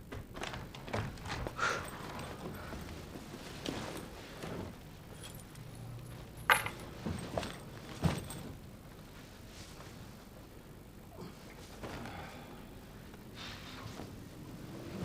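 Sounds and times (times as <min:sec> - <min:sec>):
bag clicks and knocks: 0:06.5 - 0:08.6.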